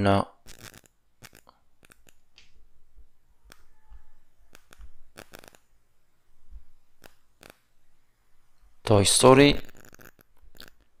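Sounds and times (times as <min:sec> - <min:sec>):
computer mouse clicks: 0:00.5 - 0:02.5, 0:03.5 - 0:03.7, 0:04.5 - 0:05.6.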